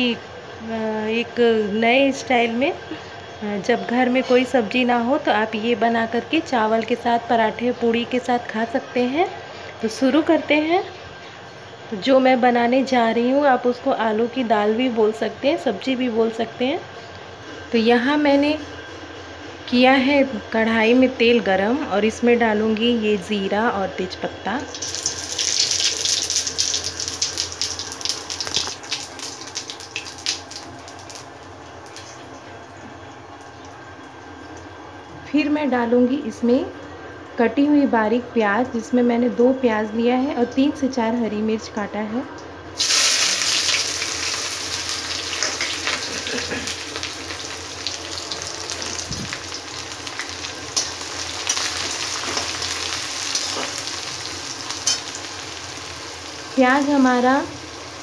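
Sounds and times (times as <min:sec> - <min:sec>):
spices sizzling in hot oil: 0:24.6 - 0:34.9, 0:42.8 - 0:58.0.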